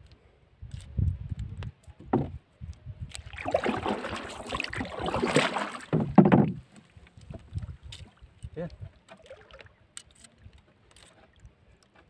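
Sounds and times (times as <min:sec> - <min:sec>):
water sloshing against wooden boat: 0:01.9 - 0:02.4, 0:03.1 - 0:12.0
loud splash: 0:03.3 - 0:06.2.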